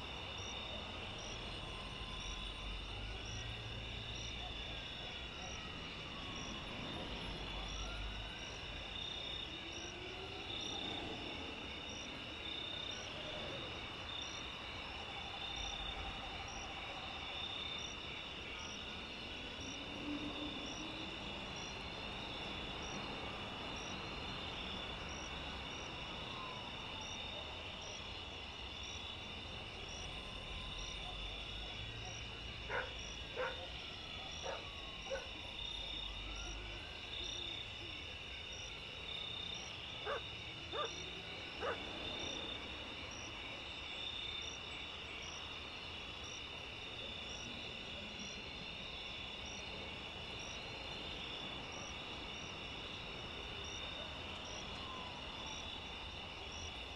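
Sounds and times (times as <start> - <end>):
crickets trilling: 0.0 - 56.9.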